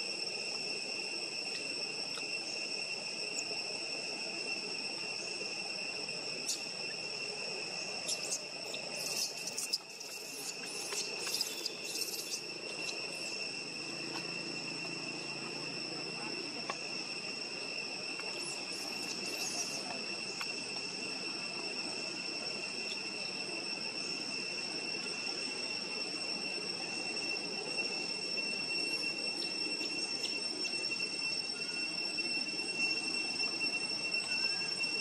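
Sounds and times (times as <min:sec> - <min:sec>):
high-pitched insect drone: 0:00.0 - 0:35.0.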